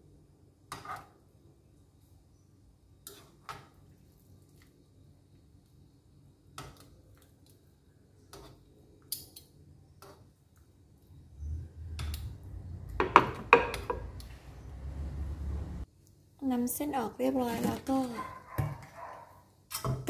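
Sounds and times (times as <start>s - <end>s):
tongs clacking against pan and plate: 8.3s - 9.5s
low rumble: 11.2s - 13.1s, 13.8s - 15.9s.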